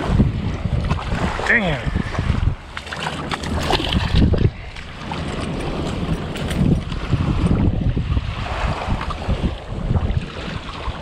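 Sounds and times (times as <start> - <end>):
wind buffeting microphone: 0.0 - 11.0
fishing rod and reel handling: 2.8 - 7.5.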